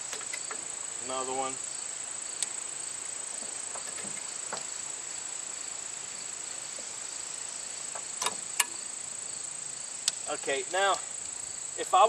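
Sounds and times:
high-pitched insect chorus: 0:00.0 - 0:12.0
hydraulic coupler clicks: 0:08.0 - 0:08.8.

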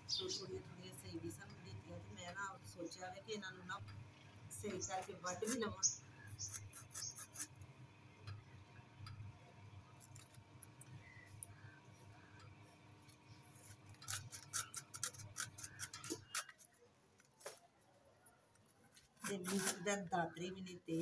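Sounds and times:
sickle cutting dry palm fibre: 0:06.3 - 0:07.6, 0:13.5 - 0:17.7, 0:18.9 - 0:19.9.

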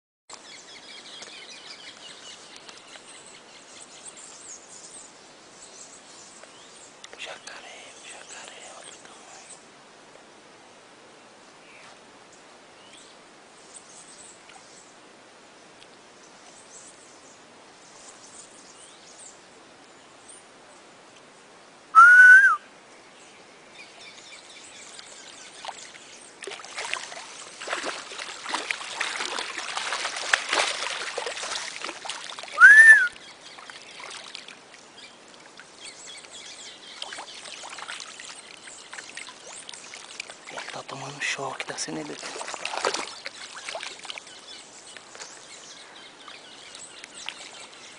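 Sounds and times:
whistled bird call: 0:22.0 - 0:22.7, 0:32.5 - 0:33.2
water splashing and churning: 0:24.8 - 0:45.6, 0:46.2 - 0:47.9.

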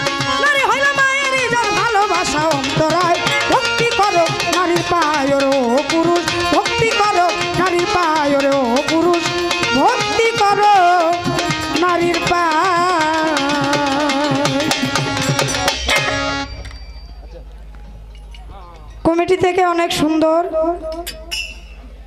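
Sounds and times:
tabla drumming: 0:00.0 - 0:17.4.

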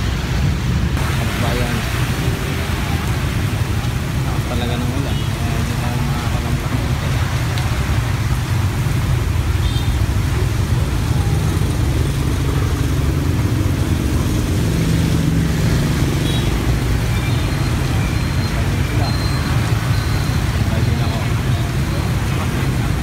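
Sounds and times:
heavy rain hiss: 0:00.0 - 0:23.0
road traffic rumble: 0:00.0 - 0:23.0.

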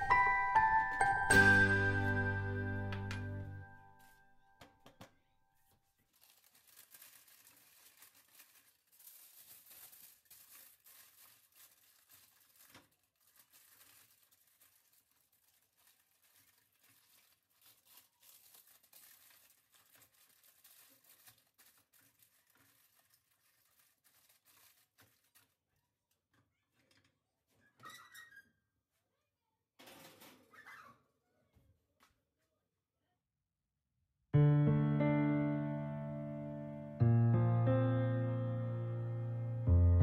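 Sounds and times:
aluminium foil crinkling: 0:05.6 - 0:26.3.

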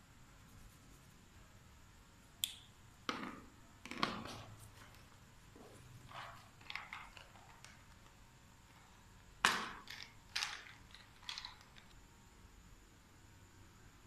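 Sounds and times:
handling noise: 0:03.1 - 0:12.0
markers knocking and clattering: 0:03.1 - 0:12.0.

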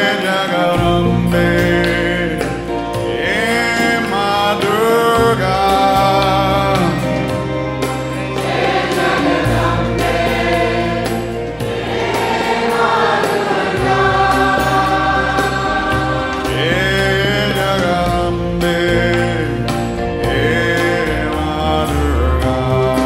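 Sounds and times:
voices singing held notes: 0:00.0 - 0:23.0
low bass drone: 0:13.7 - 0:23.0.

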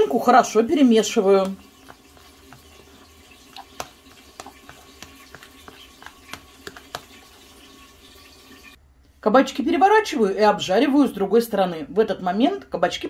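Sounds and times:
fork scraping plastic dish: 0:01.5 - 0:07.6.

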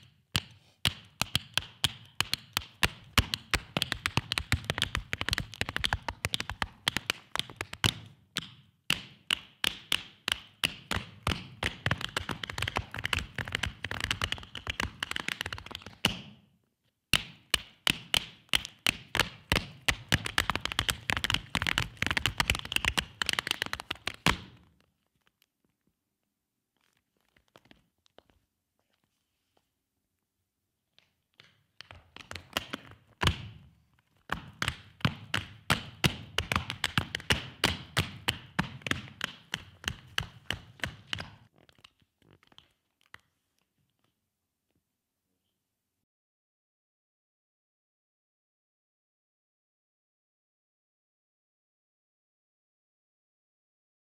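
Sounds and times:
tap shoes tapping on stage floor: 0:00.0 - 0:16.4, 0:17.1 - 0:24.7, 0:31.0 - 0:43.3.

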